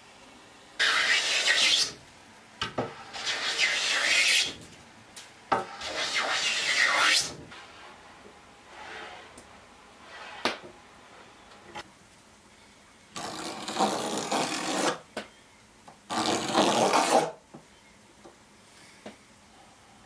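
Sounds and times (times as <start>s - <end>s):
wood scraping against a board: 8.7s - 9.4s.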